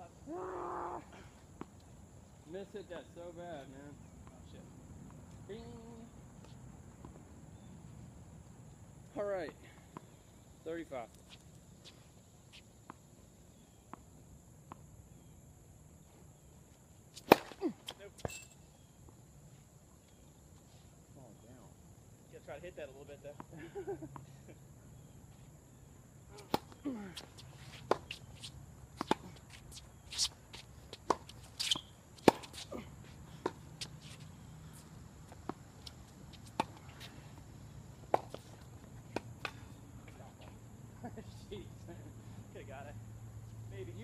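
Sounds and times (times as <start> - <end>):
faint high hiss: 0.0 - 44.0
tennis ball bouncing on court: 17.2 - 17.6, 26.4 - 32.6, 35.3 - 37.1, 38.0 - 39.6
tennis ball pops: 17.2 - 17.6, 38.1 - 38.4
shoe scuffs: 26.3 - 37.4.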